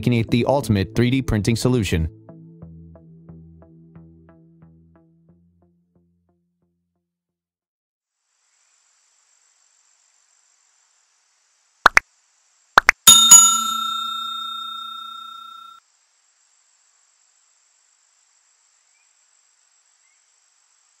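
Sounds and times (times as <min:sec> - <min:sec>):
bright bell ding: 0:13.0 - 0:15.8.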